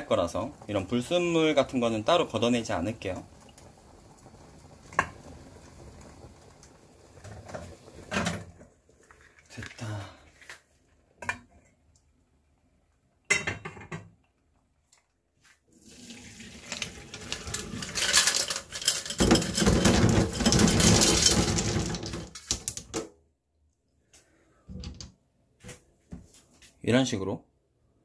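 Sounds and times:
water poured into a sink: 15.7s - 22.7s
metal pot clattering: 16.3s - 23.1s.

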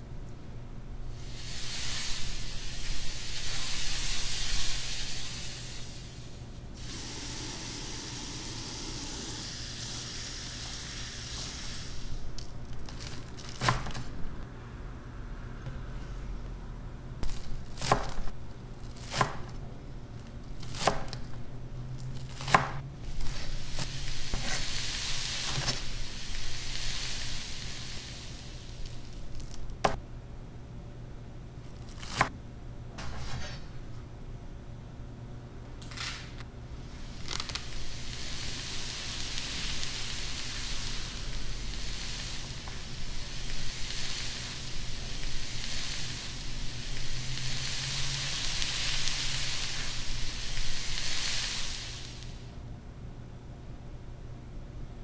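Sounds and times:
food sizzling in a pan: 1.1s - 12.4s, 23.1s - 29.5s, 36.9s - 52.5s.

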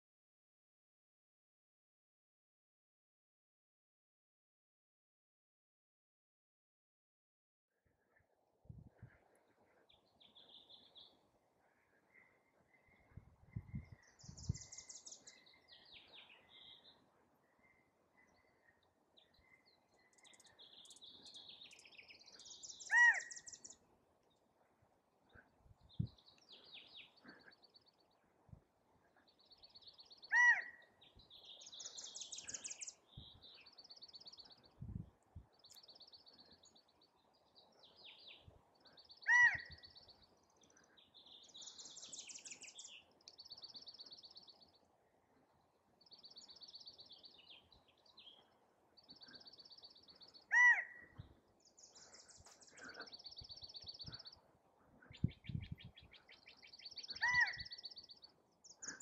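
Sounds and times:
small birds trilling: 9.9s - 23.8s, 35.5s - 44.8s, 46.0s - 59.0s
quail calling: 22.9s - 23.5s, 30.3s - 30.8s, 39.3s - 39.9s, 50.5s - 51.1s, 57.1s - 57.8s.

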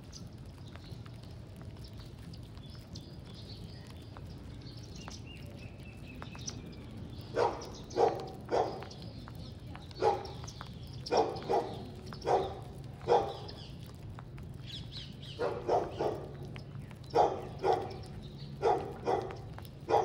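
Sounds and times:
dog barking: 7.3s - 9.0s, 10.0s - 10.5s, 11.1s - 13.5s, 15.4s - 16.4s, 17.1s - 20.0s.

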